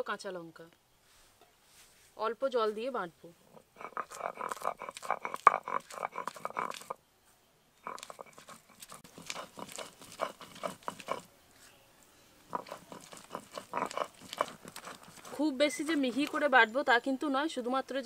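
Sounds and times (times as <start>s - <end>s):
stone grinding on stone slab: 3.5s - 7.0s, 7.8s - 11.3s, 12.5s - 16.6s.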